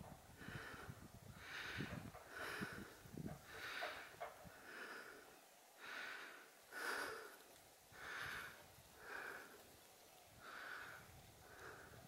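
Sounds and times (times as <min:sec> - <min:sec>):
person breathing hard: 0:00.4 - 0:09.6, 0:10.4 - 0:12.0.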